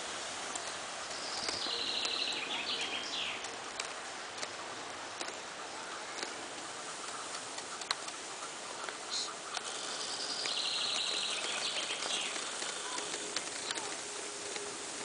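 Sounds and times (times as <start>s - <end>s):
outdoor hiss: 0.0s - 15.0s
faint clicks: 0.4s - 15.0s
songbird trilling: 1.1s - 3.5s, 8.3s - 13.9s.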